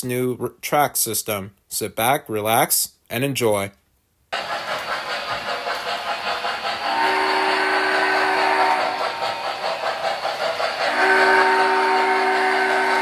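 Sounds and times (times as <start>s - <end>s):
model steam locomotive chuffing: 4.4s - 13.0s
multi-note steam whistle: 6.7s - 13.0s.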